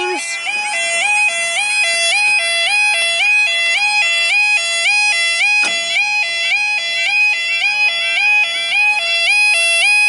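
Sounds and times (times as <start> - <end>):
two-tone warbling crossing alarm: 0.0 - 10.0.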